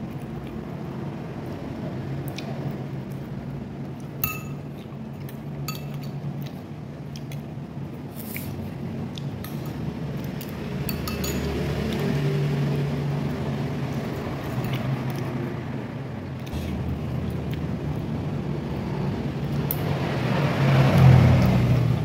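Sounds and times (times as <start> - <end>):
cutlery clinking on ceramic bowl: 4.2 - 4.8, 5.7 - 6.2, 10.9 - 11.6.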